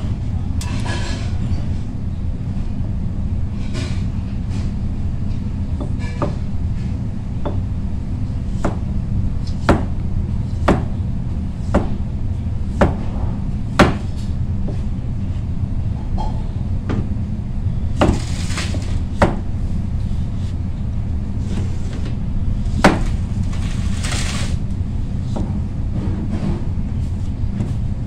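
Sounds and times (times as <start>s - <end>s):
knife chopping on cutting board: 8.5s - 9.9s, 10.6s - 11.0s, 11.6s - 12.0s, 12.7s - 13.1s, 13.7s - 14.8s, 18.0s - 19.4s.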